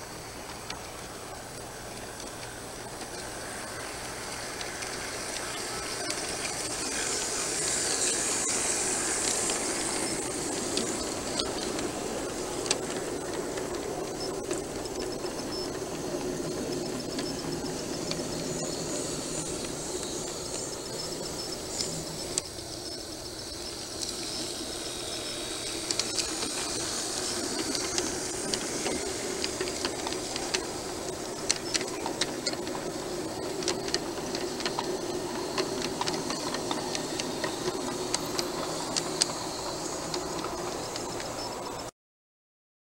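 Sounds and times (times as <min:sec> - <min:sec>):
model train wheels and motor rumble: 0:00.0 - 0:41.9
wheels clicking over rail joints: 0:00.0 - 0:41.9.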